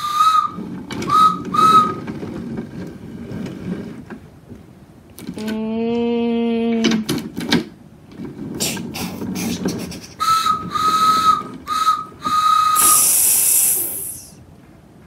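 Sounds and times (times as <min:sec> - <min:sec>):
whistle toots: 0:00.0 - 0:02.0, 0:10.2 - 0:14.4
person imitating train: 0:08.6 - 0:11.3, 0:12.6 - 0:14.4
held voiced tone: 0:12.8 - 0:14.4
steam-like hiss: 0:12.8 - 0:14.4.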